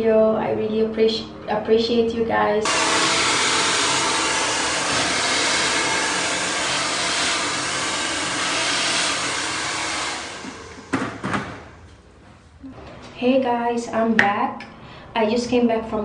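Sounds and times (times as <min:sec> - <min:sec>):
hair dryer blowing: 0:02.6 - 0:11.8.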